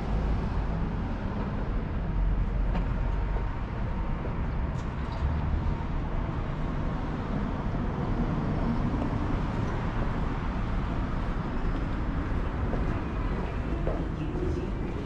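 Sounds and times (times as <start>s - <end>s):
low rumbling airport din: 0.0s - 15.0s
faint voices: 11.8s - 15.0s.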